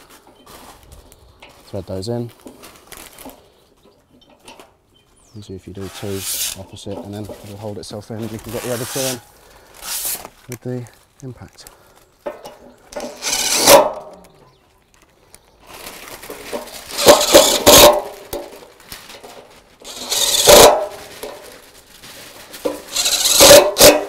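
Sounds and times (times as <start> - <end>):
impact driver driving screws: 13.0 - 14.1, 17.0 - 18.0, 19.9 - 20.8, 22.9 - 24.0.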